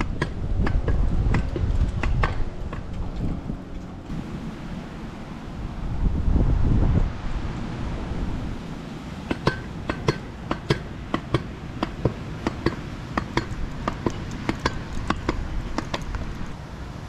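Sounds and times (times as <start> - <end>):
pogo stick metallic clacks: 0.0 - 3.3, 9.3 - 16.5
wind rumble: 0.0 - 17.0.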